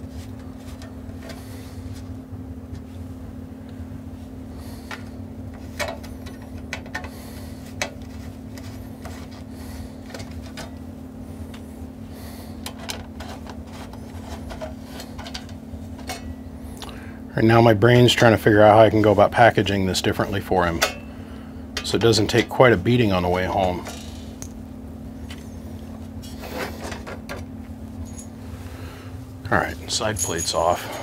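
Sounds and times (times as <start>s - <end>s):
steady low hum: 0.0s - 31.0s
metal hardware clicks and clinks: 28.0s - 28.4s, 29.9s - 31.0s.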